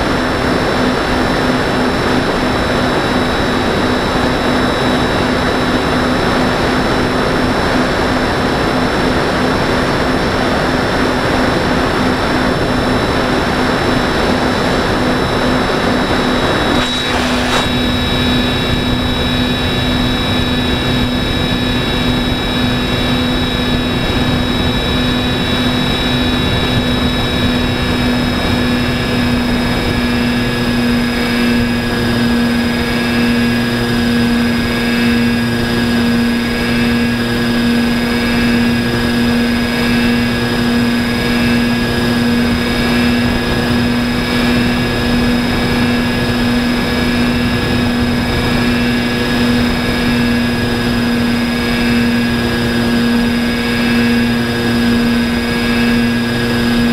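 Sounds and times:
electric motor and propeller whine: 0.0 - 56.9
rushing air hiss: 16.5 - 18.7.

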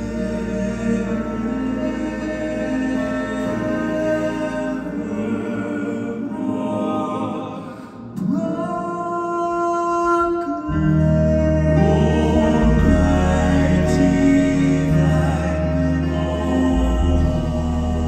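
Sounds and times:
gospel group singing: 0.0 - 18.0
deep bass: 10.7 - 18.0.

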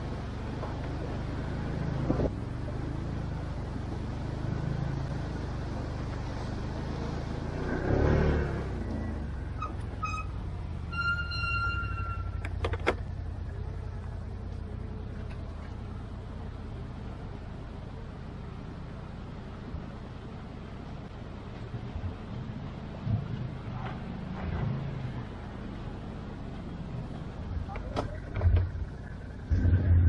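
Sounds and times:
atv engine running at low revs: 0.0 - 10.8.

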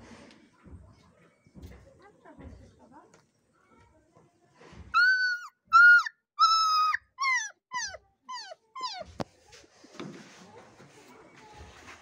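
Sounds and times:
puppy whining: 5.0 - 9.2.

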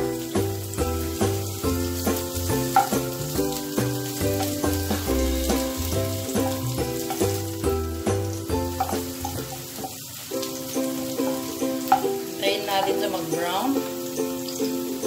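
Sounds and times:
background music with beat: 0.0 - 12.3
garlic sizzling in oil: 0.0 - 15.0.

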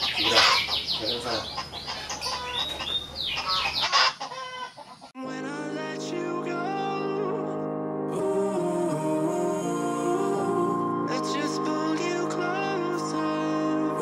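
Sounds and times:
chickens clucking: 0.0 - 5.2
background music with held notes: 5.2 - 14.0.

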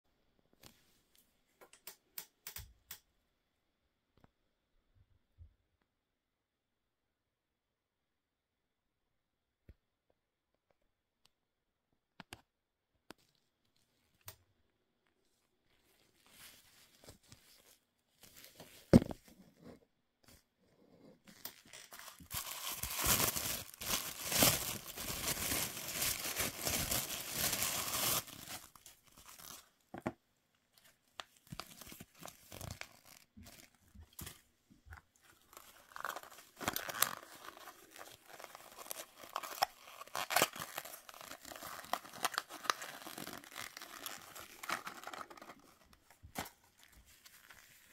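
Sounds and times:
tissue paper crinkling: 21.5 - 29.7, 30.8 - 47.9.

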